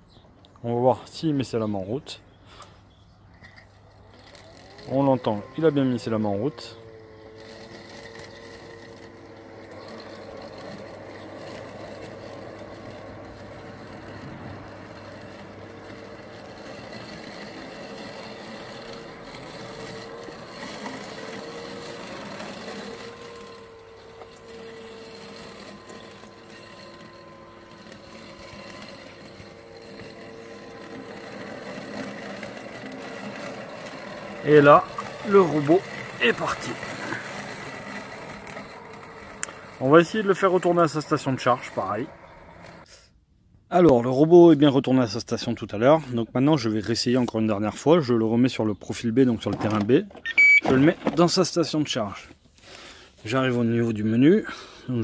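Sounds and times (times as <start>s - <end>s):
robotic mower motor whine: 3.4s - 43.0s.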